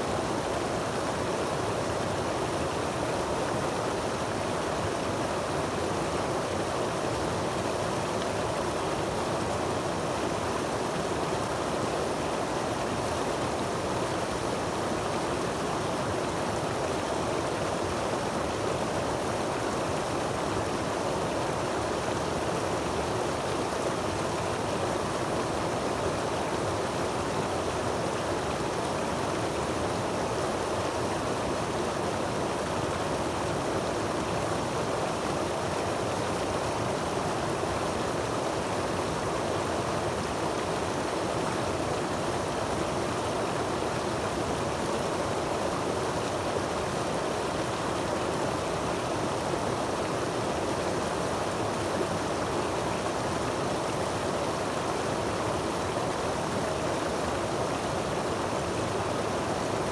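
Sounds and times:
creek water rushing over rocks: 0:00.0 - 0:59.9.

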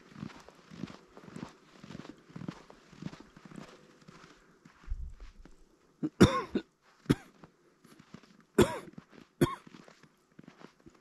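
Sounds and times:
person coughing: 0:06.0 - 0:07.3, 0:08.6 - 0:09.7.

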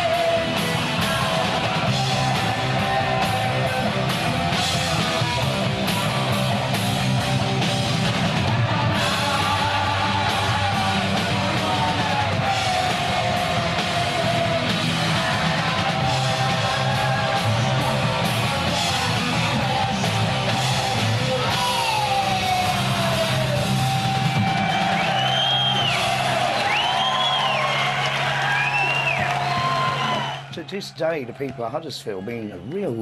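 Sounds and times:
person yelling singing: 0:00.0 - 0:06.4, 0:08.4 - 0:24.3
punk rock music: 0:00.0 - 0:31.2.

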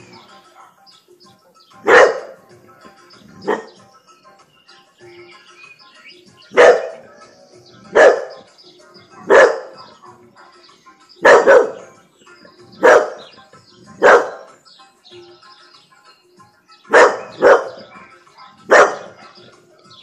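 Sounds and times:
faint music: 0:00.0 - 0:20.0
dog barking loudly: 0:01.8 - 0:02.4, 0:06.5 - 0:07.1, 0:07.9 - 0:08.5, 0:09.2 - 0:09.8, 0:11.2 - 0:11.9, 0:12.8 - 0:13.3, 0:14.0 - 0:14.5, 0:16.9 - 0:17.9, 0:18.6 - 0:19.2.

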